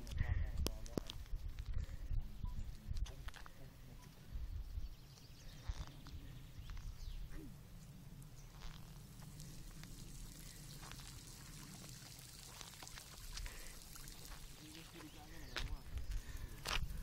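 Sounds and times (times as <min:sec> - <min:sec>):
low steady rumble: 0:05.9 - 0:12.3.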